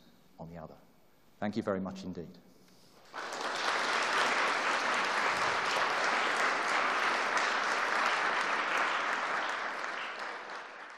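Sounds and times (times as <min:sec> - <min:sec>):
audience applauding: 0:03.0 - 0:10.9.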